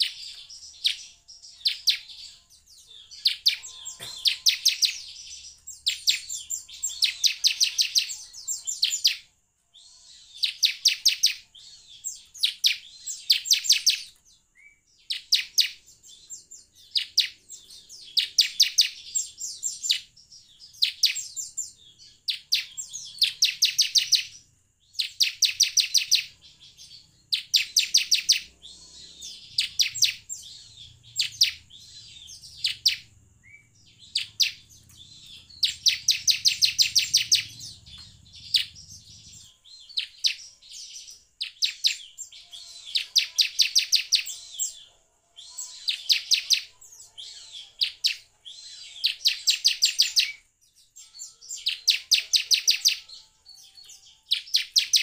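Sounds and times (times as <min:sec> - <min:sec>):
bird song with rapid high chipping notes: 0:00.0 - 0:55.0
faint steady high tone: 0:00.0 - 0:55.0.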